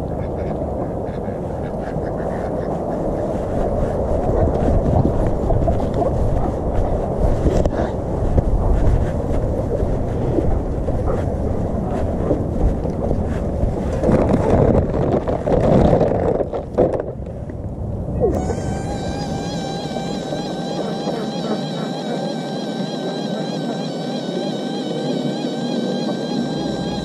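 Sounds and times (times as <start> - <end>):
wind and handling rumble: 0.0 - 18.5
steady pitched hum: 18.2 - 27.0.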